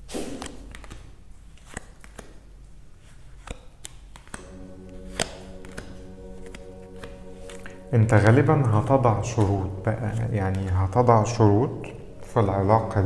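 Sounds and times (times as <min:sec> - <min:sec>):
cards clicking and tapping: 0:00.2 - 0:04.5
soft background music: 0:04.0 - 0:13.0.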